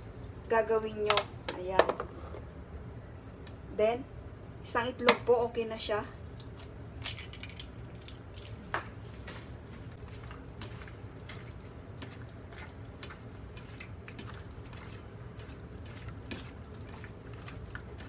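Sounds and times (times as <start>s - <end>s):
wet squishing of meat mixing: 8.0s - 18.0s.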